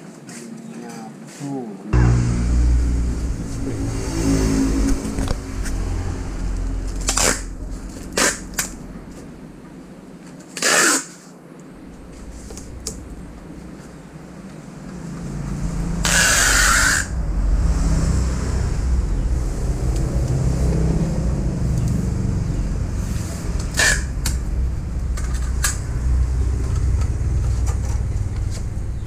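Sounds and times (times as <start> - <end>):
steady low rumble: 1.9 - 10.4, 11.4 - 29.0
adhesive tape ripped off roll: 7.0 - 8.8, 10.5 - 11.3.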